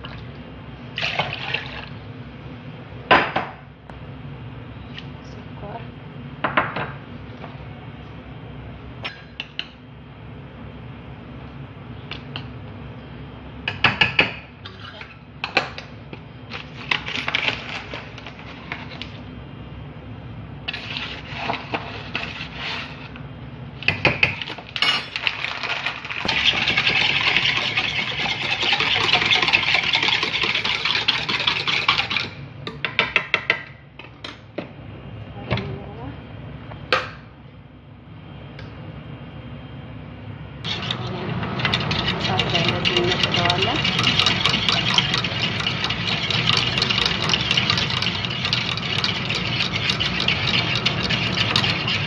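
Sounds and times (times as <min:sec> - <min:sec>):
whisk beating batter: 0:25.4 - 0:32.4, 0:40.7 - 0:52.0.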